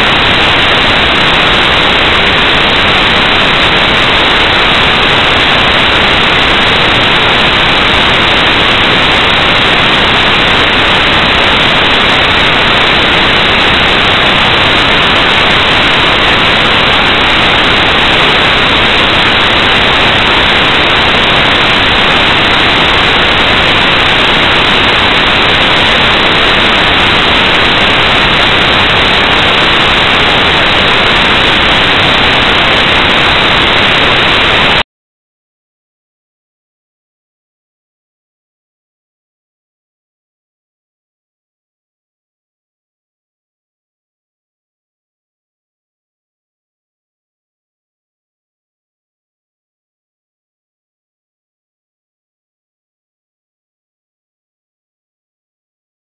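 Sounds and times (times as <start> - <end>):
static hiss: 0.0 - 34.8.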